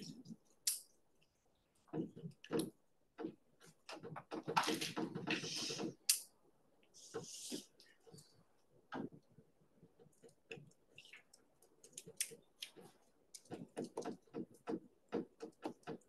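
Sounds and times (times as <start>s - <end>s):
faint irregular clicks and taps: 0.0s - 16.0s.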